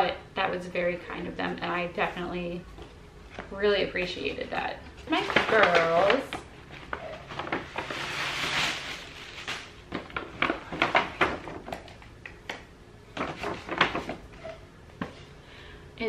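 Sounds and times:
tissue paper rustling and crinkling: 5.0 - 11.7, 13.2 - 14.3.

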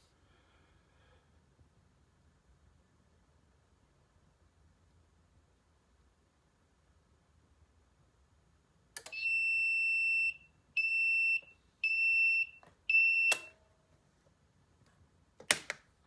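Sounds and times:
alarm buzzer beeps: 9.1 - 13.5.

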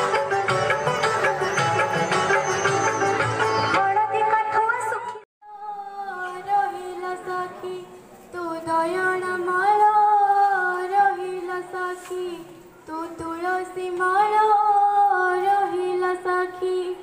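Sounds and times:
girl singing into a microphone: 3.8 - 17.0.

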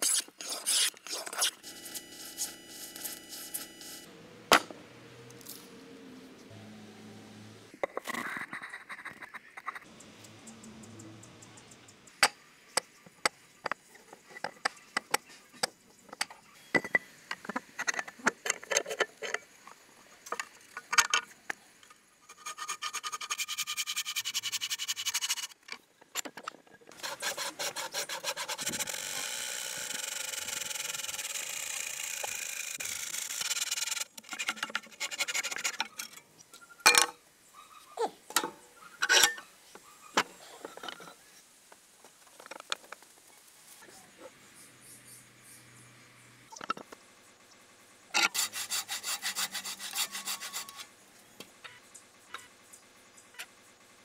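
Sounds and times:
hand saw cutting wood: 26.9 - 30.1, 32.1 - 36.0, 48.2 - 50.9.

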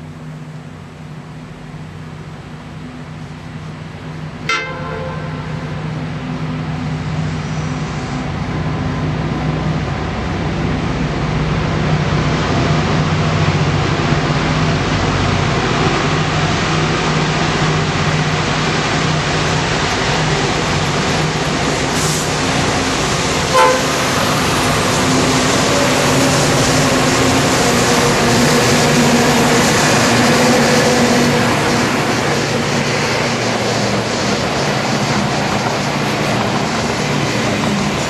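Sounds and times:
diesel locomotive engines drumming: 0.0 - 38.0
brief sharp sound: 4.5 - 6.0.

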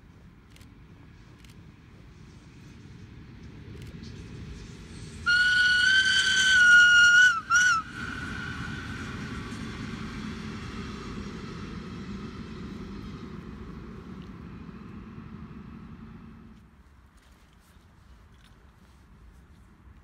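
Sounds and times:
train rolling on rails: 0.0 - 20.0
train horn blasts: 5.2 - 9.8.

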